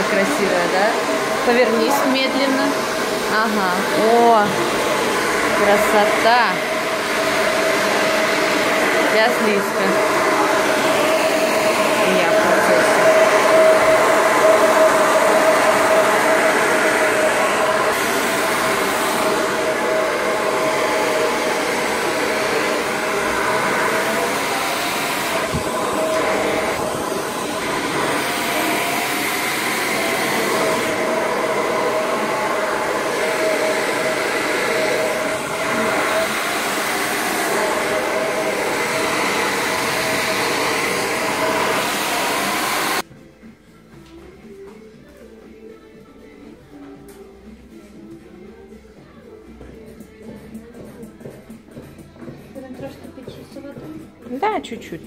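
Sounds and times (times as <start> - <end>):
hair dryer blowing: 0.0 - 43.1.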